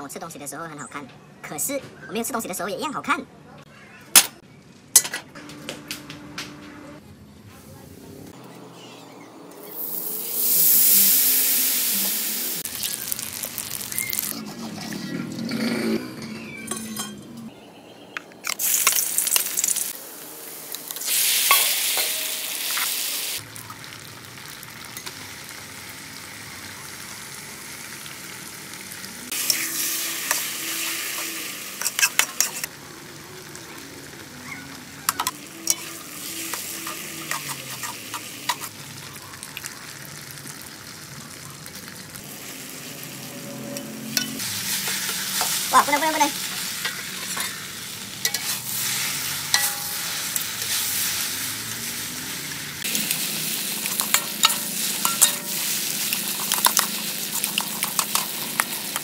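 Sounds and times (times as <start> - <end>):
food sizzling in hot oil: 9.6 - 14.4, 18.5 - 59.0
metal spatula scraping wok: 29.3 - 32.8, 35.1 - 38.8, 42.9 - 59.0.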